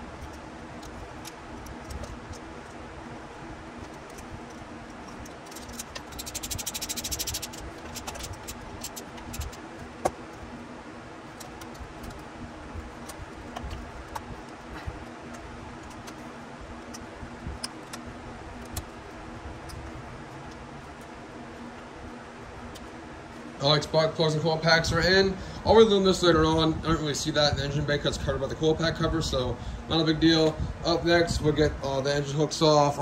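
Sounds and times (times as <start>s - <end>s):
low steady hum: 0.0s - 33.0s
ratchet clicking: 3.8s - 9.6s.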